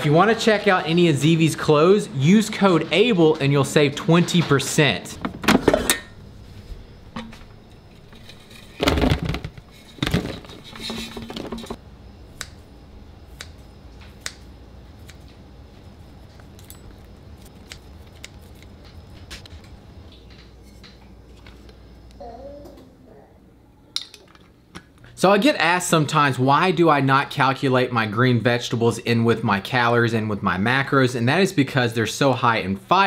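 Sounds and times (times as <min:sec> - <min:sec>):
rustling and clatter: 0:05.1 - 0:11.8.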